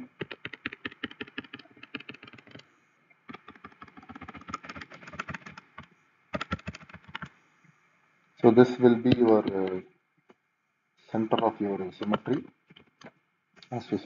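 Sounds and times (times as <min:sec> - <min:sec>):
stylus tapping on drawing tablet: 0:00.1 - 0:02.6, 0:03.3 - 0:07.3, 0:09.0 - 0:09.8, 0:11.3 - 0:13.1.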